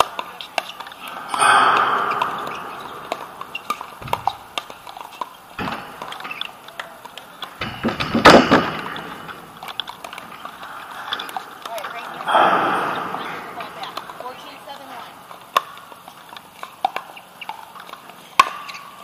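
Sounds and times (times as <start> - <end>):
rushes of noise: 0.9 - 4.6, 8.8 - 14.4.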